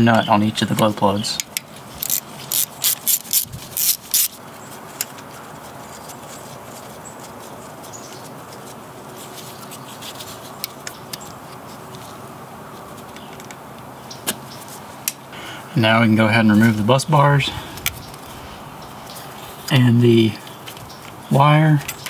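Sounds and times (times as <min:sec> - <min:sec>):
ratchet wrench clicking: 0:02.0 - 0:04.4.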